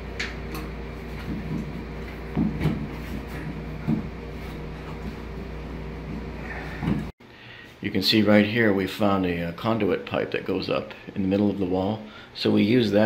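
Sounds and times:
low hum: 0:00.0 - 0:07.1.

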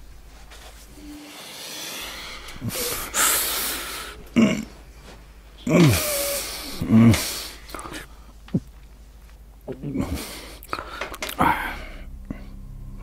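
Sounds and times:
man breathing heavily: 0:00.9 - 0:08.5, 0:09.9 - 0:12.7
man grunting: 0:04.3 - 0:04.8, 0:05.6 - 0:07.5, 0:09.7 - 0:10.4, 0:11.3 - 0:12.0.

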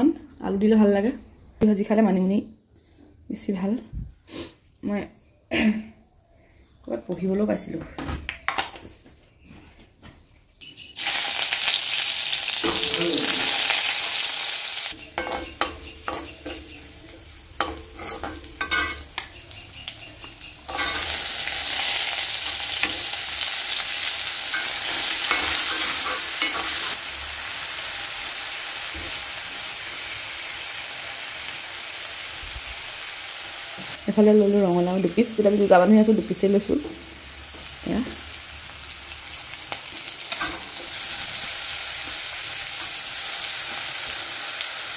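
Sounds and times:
hot oil sizzling in a wok: 0:11.0 - 0:35.8, 0:36.6 - 0:44.9
spoon scraping against a pan: 0:15.0 - 0:19.3, 0:20.2 - 0:23.1, 0:24.5 - 0:27.0.

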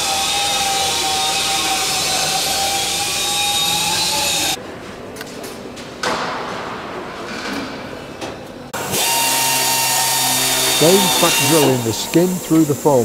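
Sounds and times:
power drill drilling metal: 0:00.0 - 0:04.6, 0:08.8 - 0:13.0
echoing clunk: 0:06.0 - 0:08.4.

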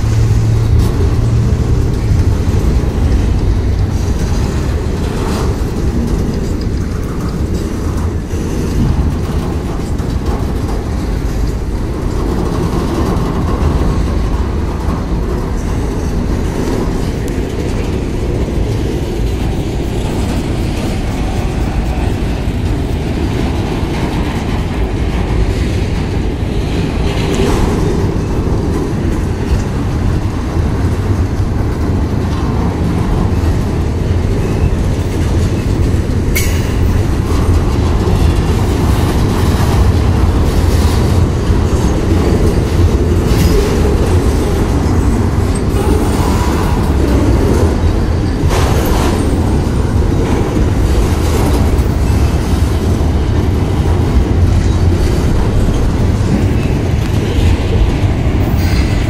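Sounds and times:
train wheels rumbling on rail: 0:00.0 - 0:59.0
sharp clanks: 0:36.3 - 0:37.8.

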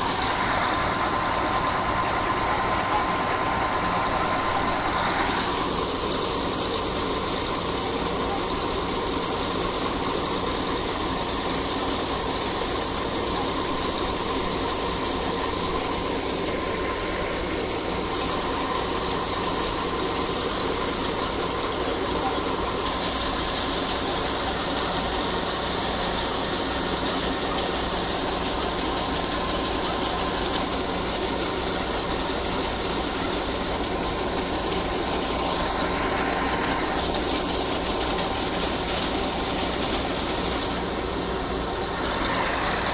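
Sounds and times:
combine harvester running: 0:00.0 - 0:42.9
grain pouring into a trailer: 0:00.0 - 0:42.9.

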